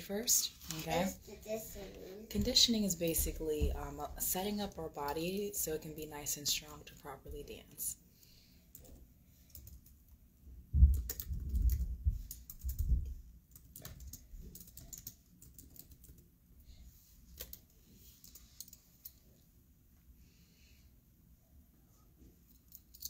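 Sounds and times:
typing on laptop keyboard: 8.7s - 10.1s, 10.8s - 16.3s, 17.3s - 18.8s.

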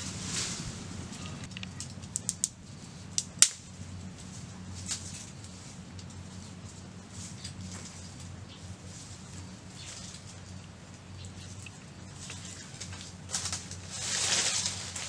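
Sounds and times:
leaves and twigs rustling: 0.0s - 15.0s.

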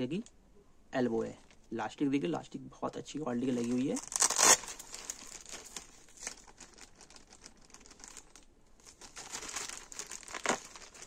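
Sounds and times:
plastic bag crinkling: 3.4s - 11.0s.

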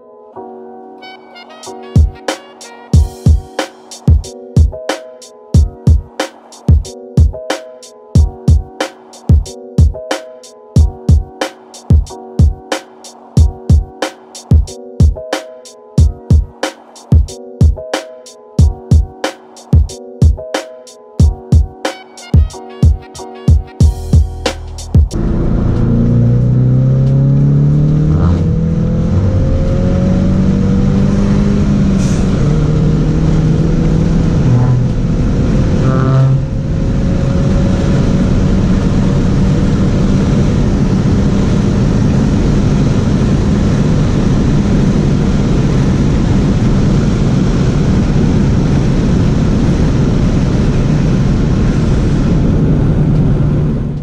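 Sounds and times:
road noise: 24.5s - 54.0s
car engine accelerating: 25.1s - 47.7s.

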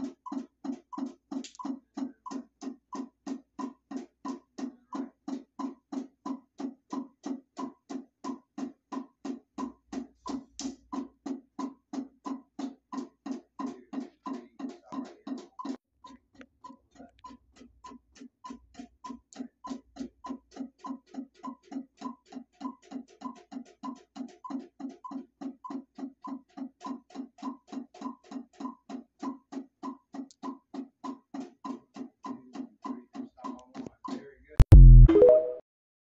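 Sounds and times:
drum kit steady beat: 0.0s - 0.3s, 34.6s - 35.6s
loud low burst: 34.6s - 35.2s.

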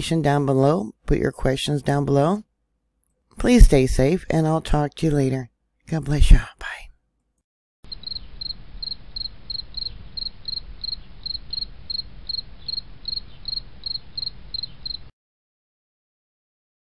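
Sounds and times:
cricket chirping: 7.9s - 15.1s.

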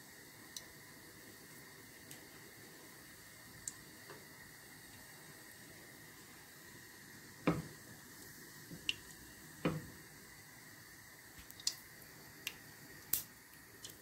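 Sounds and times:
mustard seeds popping in hot oil: 0.4s - 0.8s, 3.5s - 5.1s, 7.3s - 10.2s, 11.3s - 14.0s.

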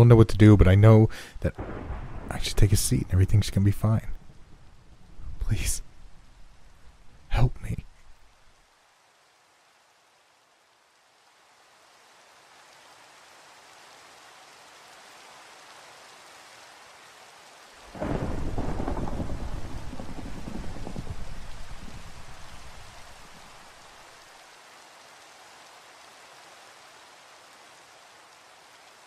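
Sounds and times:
steady rain: 0.0s - 29.0s
thunderclap rumbling: 1.5s - 5.5s, 17.9s - 23.6s.

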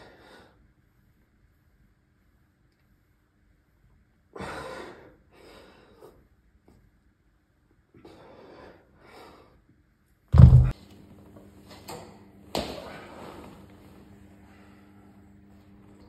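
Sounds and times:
weights thudding on floor: 10.4s - 10.7s
faint low hum: 10.4s - 11.5s.

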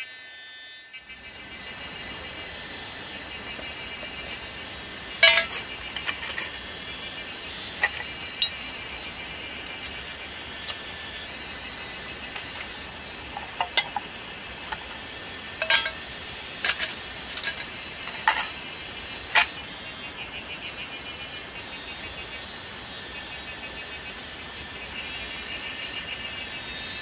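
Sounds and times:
faint high pulsing chirps: 0.0s - 27.0s
metal mess tins clinking: 5.2s - 6.6s, 7.8s - 8.7s, 12.4s - 15.0s, 15.6s - 18.6s, 19.3s - 19.5s.

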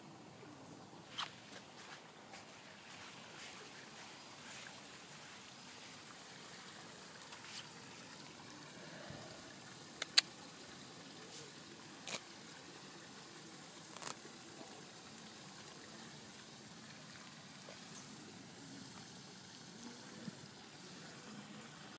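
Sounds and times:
steady background hiss: 0.0s - 21.9s
sharp clicks: 10.0s - 10.3s.

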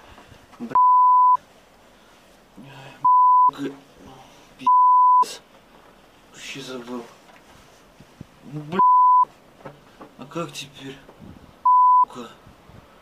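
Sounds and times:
high-pitched censor beep: 0.8s - 1.4s, 3.1s - 3.5s, 4.7s - 5.2s, 8.8s - 9.3s, 11.7s - 12.1s.

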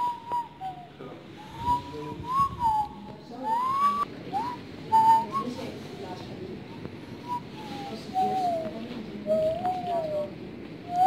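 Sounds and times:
person whistling a tune: 0.0s - 5.7s, 7.2s - 8.7s, 9.3s - 10.3s.

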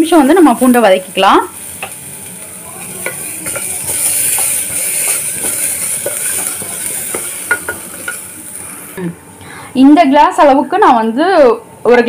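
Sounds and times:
garlic sizzling in hot oil: 0.0s - 9.0s
wooden spatula scraping a pot: 2.8s - 9.0s.

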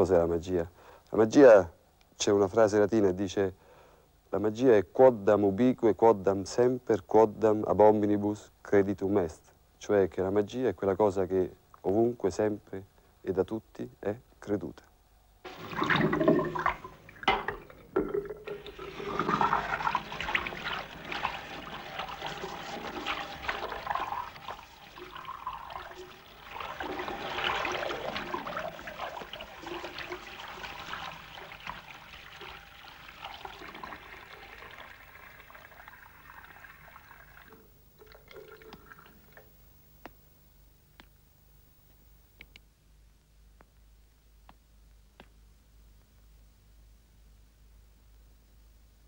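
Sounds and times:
tap water running into washbasin: 15.5s - 39.5s.

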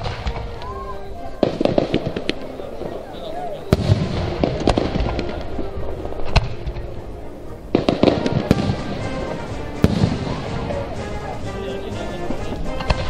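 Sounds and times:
firework shells bursting: 3.7s - 7.0s, 7.7s - 11.4s.

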